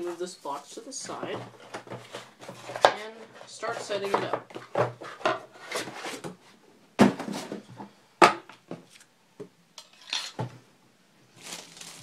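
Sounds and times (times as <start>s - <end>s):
plastic wrapping rustling: 0.0s - 4.1s, 11.2s - 12.0s.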